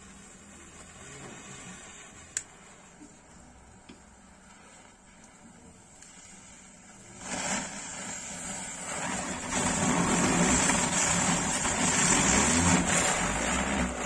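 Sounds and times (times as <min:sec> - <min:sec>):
firework spraying sparks: 0:00.0 - 0:14.0
match flaring up: 0:04.5 - 0:14.0.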